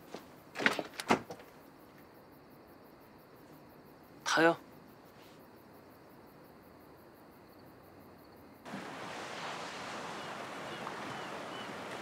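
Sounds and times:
sea surf rushing: 0:08.7 - 0:12.0.

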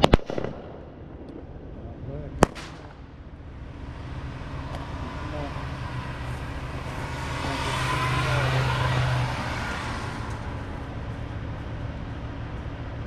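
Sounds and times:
steady low hum: 0:00.5 - 0:13.0
vehicle driving past: 0:02.7 - 0:13.0.

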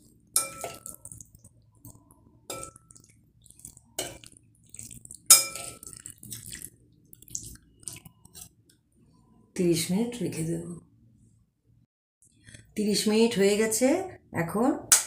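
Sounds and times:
spoons clinking on ceramic plate: 0:00.3 - 0:01.2, 0:02.5 - 0:03.1, 0:05.3 - 0:06.1.

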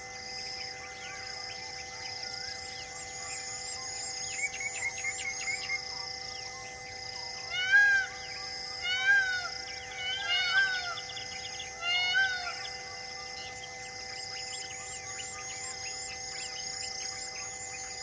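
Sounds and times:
steady humming drone: 0:00.0 - 0:18.0
animal crying loudly: 0:07.5 - 0:11.1, 0:11.8 - 0:12.8.

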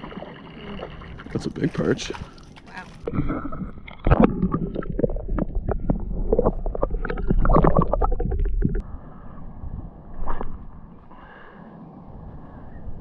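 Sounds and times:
knocks and splashes: 0:00.0 - 0:08.8
underwater water sloshing: 0:00.0 - 0:08.8
low underwater rumble: 0:02.4 - 0:13.0.

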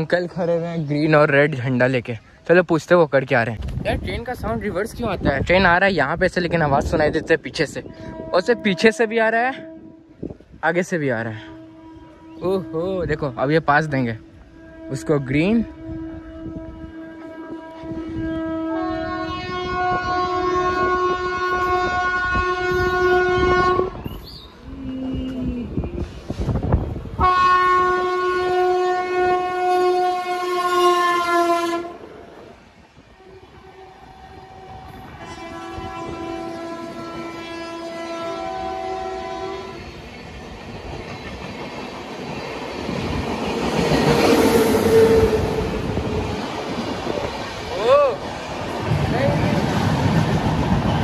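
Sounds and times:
passing train rumbling: 0:00.0 - 0:51.0
train horn blast: 0:07.6 - 0:32.3, 0:33.2 - 0:40.1, 0:43.9 - 0:46.4.

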